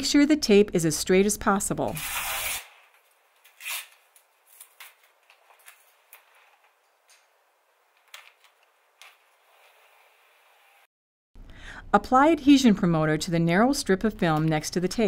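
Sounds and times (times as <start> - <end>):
masking tape rustling: 1.8 - 10.9.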